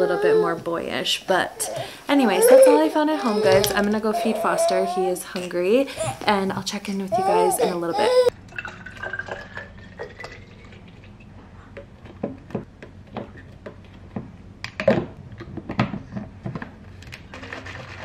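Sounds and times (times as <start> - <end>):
water pouring into a bottle: 8.5 - 11.2.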